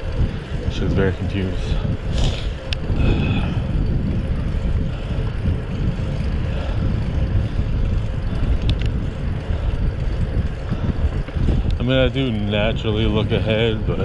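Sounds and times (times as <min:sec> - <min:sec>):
tyre noise on asphalt: 0:00.0 - 0:14.0
wind buffeting microphone: 0:00.0 - 0:14.0
light clicks: 0:08.5 - 0:09.0.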